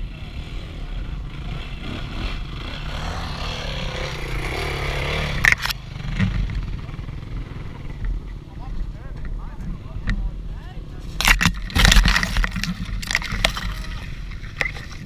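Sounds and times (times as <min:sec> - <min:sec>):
dirt bike engine running: 0:00.0 - 0:09.9
branches striking helmet: 0:11.2 - 0:14.9.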